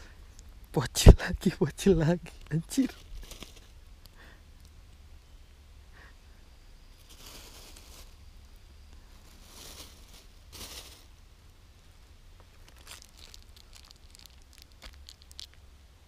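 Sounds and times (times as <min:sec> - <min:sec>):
plastic bag rustling: 0:02.8 - 0:03.7, 0:07.0 - 0:08.2, 0:09.2 - 0:11.1, 0:12.6 - 0:15.6.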